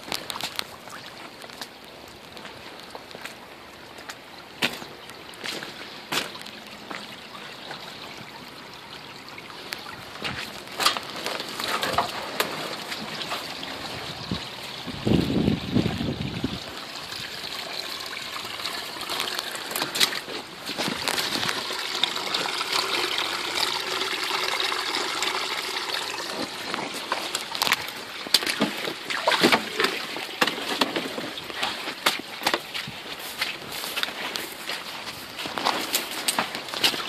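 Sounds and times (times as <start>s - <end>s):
footsteps: 0.0s - 7.1s, 10.2s - 13.6s, 19.1s - 21.8s, 26.3s - 37.0s
floodwater rushing: 0.0s - 37.0s.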